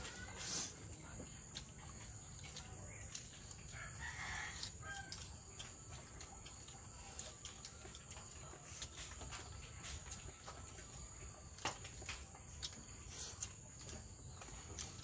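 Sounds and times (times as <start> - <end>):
rooster crowing: 3.7 - 5.3.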